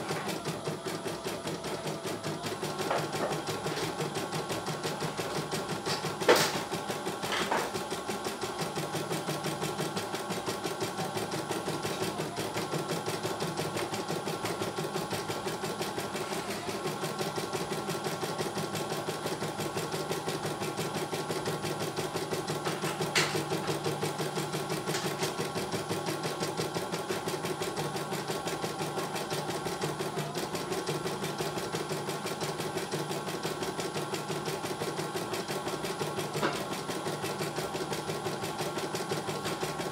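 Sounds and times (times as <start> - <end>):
embroidery machine stitching: 0.0 - 39.9.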